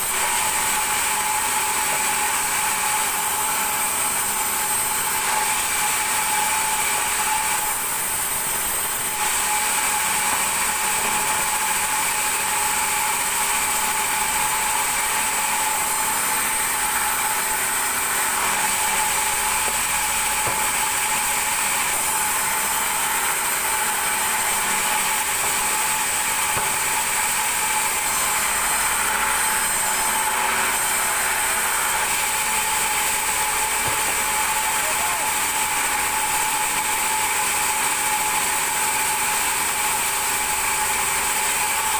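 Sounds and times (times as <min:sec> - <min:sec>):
band saw ripping timber: 0:14.7 - 0:36.9.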